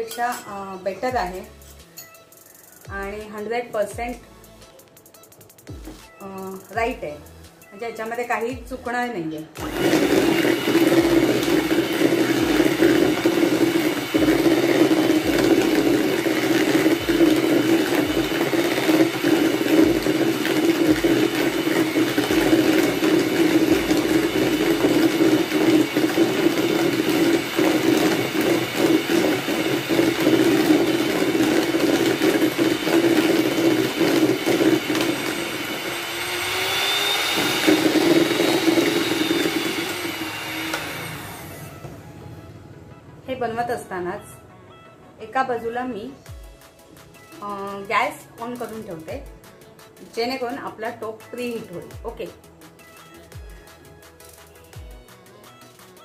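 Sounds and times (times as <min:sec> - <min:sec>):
electric hand mixer whisking: 0:09.6 - 0:42.0.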